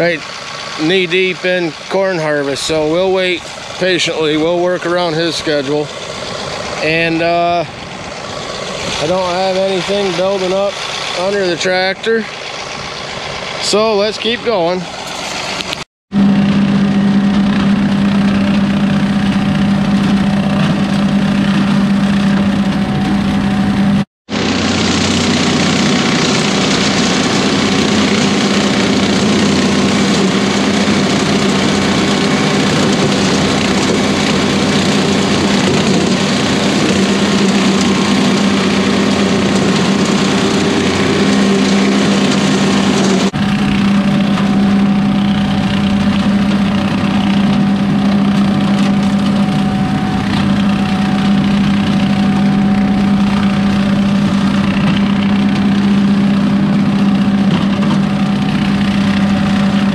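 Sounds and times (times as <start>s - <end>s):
steady hum: 0.0s - 59.9s
tractor diesel engine running: 0.0s - 59.9s
rotary cutter chopping stalks: 24.3s - 59.9s.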